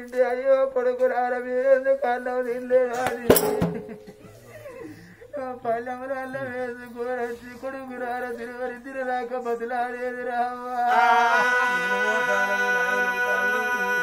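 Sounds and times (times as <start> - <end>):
men singing folk ballad: 5.3 - 14.0.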